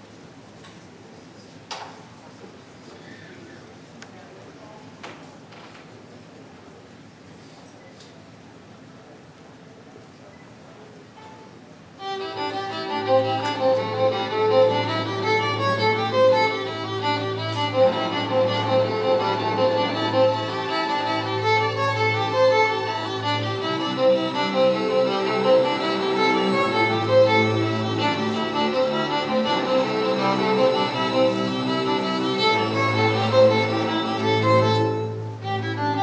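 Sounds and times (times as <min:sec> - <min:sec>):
string orchestra playing: 0:12.0 - 0:36.0
violin lead: 0:12.0 - 0:36.0.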